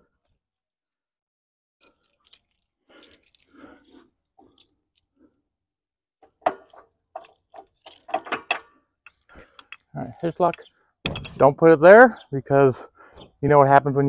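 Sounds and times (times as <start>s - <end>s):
keys rustling: 1.8s - 5.4s, 6.3s - 9.8s.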